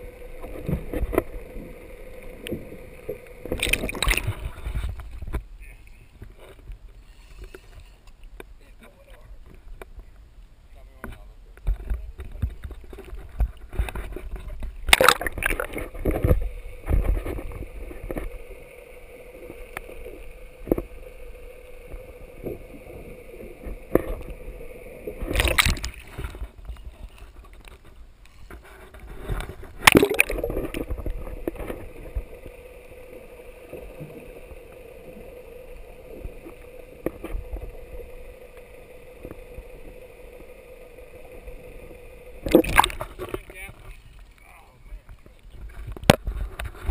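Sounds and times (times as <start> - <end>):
sea water sloshing and splashing: 0.0 - 5.4, 12.8 - 27.9, 28.6 - 35.6, 36.2 - 44.4
water gurgling: 0.0 - 6.8, 11.6 - 46.9
steady low hum: 14.7 - 27.4, 28.9 - 44.1.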